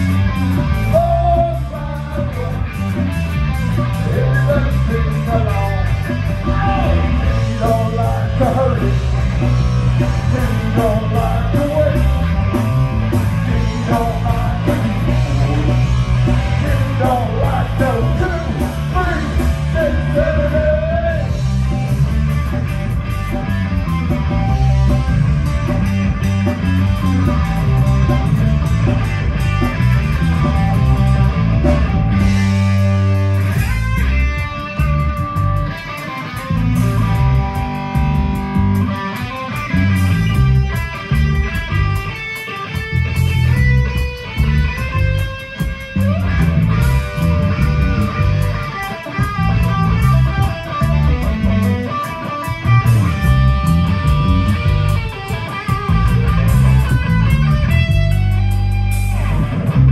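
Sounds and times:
drums: 0:00.0 - 0:59.9
electric bass: 0:00.0 - 0:59.9
electric guitar: 0:00.0 - 0:59.9
person singing: 0:00.7 - 0:02.9, 0:03.9 - 0:09.1, 0:10.2 - 0:12.3, 0:13.4 - 0:21.4.

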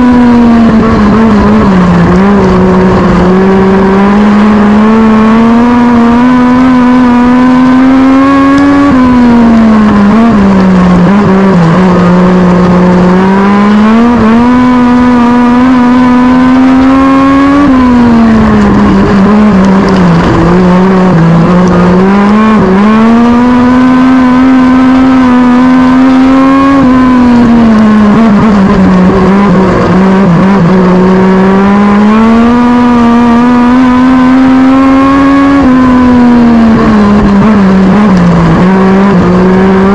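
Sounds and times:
racing car engine revving: 0:00.0 - 0:39.9.

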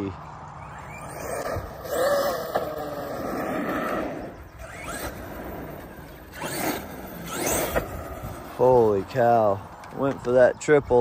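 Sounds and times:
electric motor whining: 0:00.6 - 0:09.0.

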